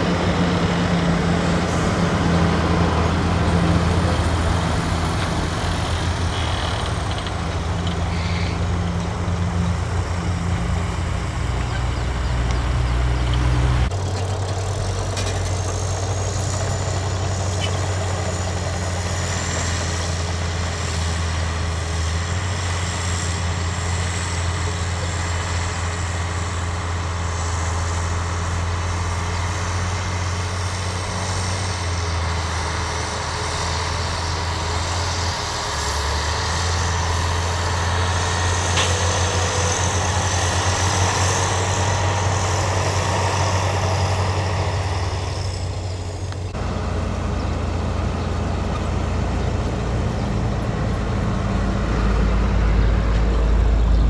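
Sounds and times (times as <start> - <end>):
diesel truck engine droning: 0.0 - 54.0.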